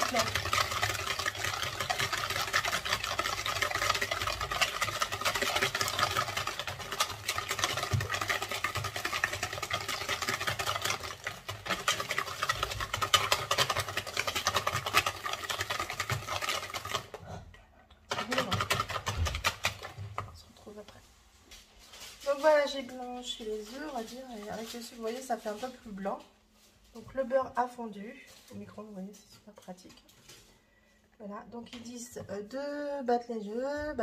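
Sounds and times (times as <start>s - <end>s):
wire whisk scraping plastic bowl: 0.0s - 17.2s, 18.1s - 20.4s, 22.1s - 26.0s.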